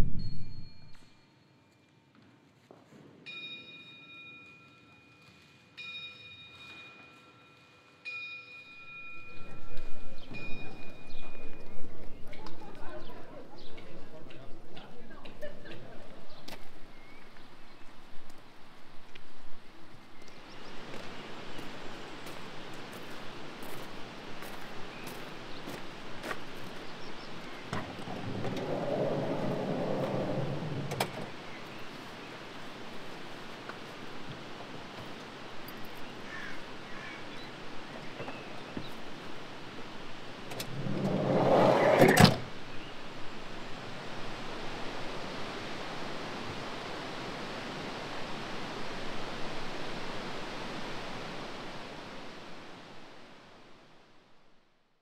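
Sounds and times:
steady rushing noise: 27.5s - 33.0s, 39.5s - 48.2s
sliding door rumbling along track: 27.6s - 31.8s, 40.2s - 44.8s.

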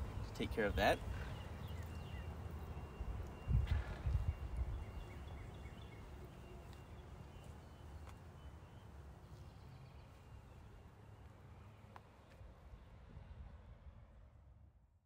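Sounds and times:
wind rumble on microphone: 2.9s - 5.5s, 12.8s - 14.8s.

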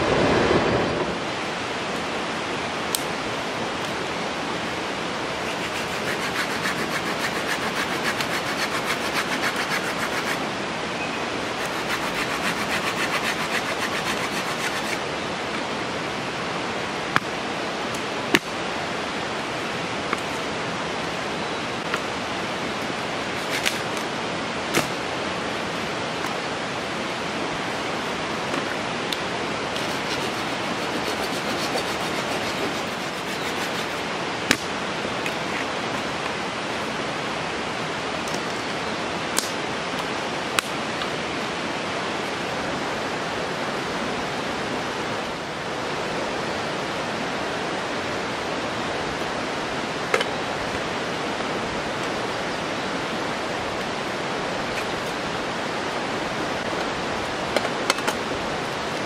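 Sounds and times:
river rushing: 0.0s - 59.0s
knife shaving wood: 5.4s - 10.4s, 11.5s - 15.0s, 23.4s - 23.9s, 29.7s - 34.0s.

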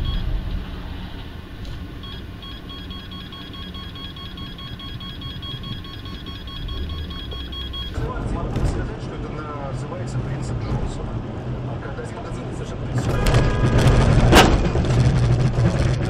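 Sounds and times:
rapid high electronic beeps: 0.0s - 0.3s, 2.0s - 8.0s
car engine and road rumble: 0.0s - 16.0s.

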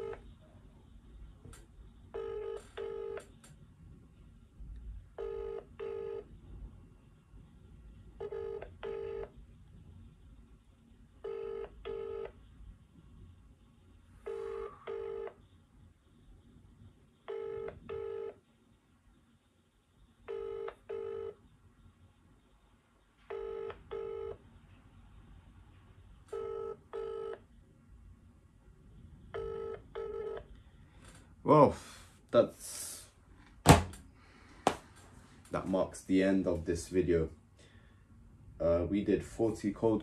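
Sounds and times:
telephone ringback tone: 2.2s - 3.2s, 5.2s - 6.2s, 8.2s - 9.3s, 11.2s - 12.3s, 14.2s - 15.4s, 17.3s - 18.3s, 20.3s - 21.4s, 23.3s - 24.4s, 26.3s - 27.4s, 29.4s - 30.4s.

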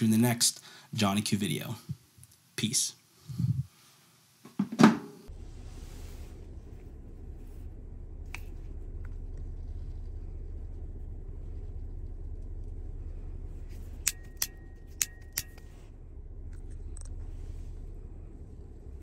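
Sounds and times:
vehicle cabin rumble: 5.3s - 19.0s
faint metallic ring: 13.8s - 15.9s
pistol metallic clicks: 14.0s - 15.7s.

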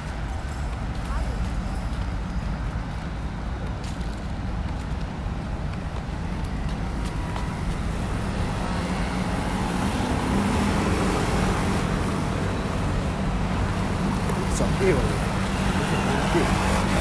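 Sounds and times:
cars and scooters passing: 5.3s - 17.0s.

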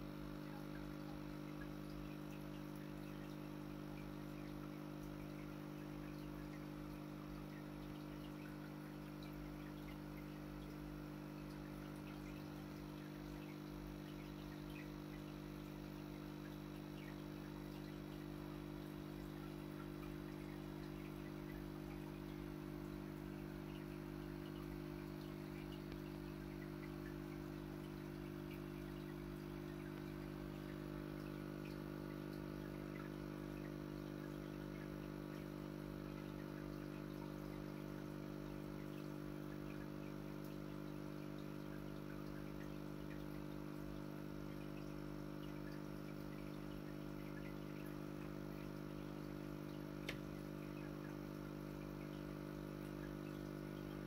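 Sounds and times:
aquarium filter motor humming: 0.0s - 54.0s
faint crackle: 0.4s - 34.4s.

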